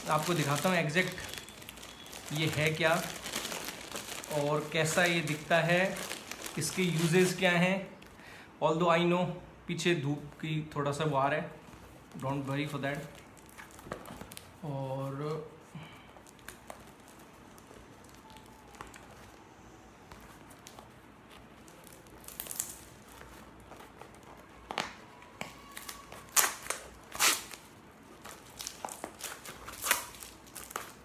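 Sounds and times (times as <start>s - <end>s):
packaging rustling and ripping: 0.0s - 7.6s, 11.7s - 14.6s, 16.2s - 19.4s, 20.2s - 31.0s.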